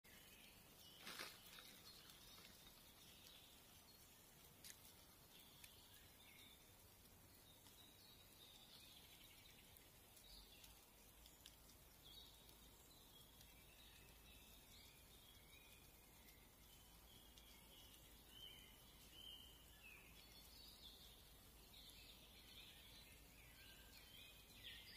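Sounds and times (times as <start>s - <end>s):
brief rustle: 1.0s - 2.8s.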